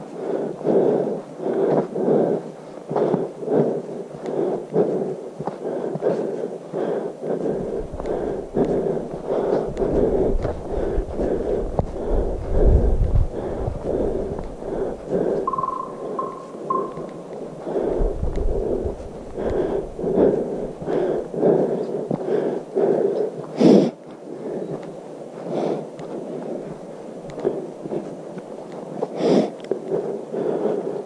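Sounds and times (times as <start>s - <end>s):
footsteps: 0.0s - 22.6s, 23.4s - 29.9s
person breathing: 0.0s - 31.0s
wind rumbling on microphone: 0.0s - 31.0s
short high beeps: 15.5s - 17.3s.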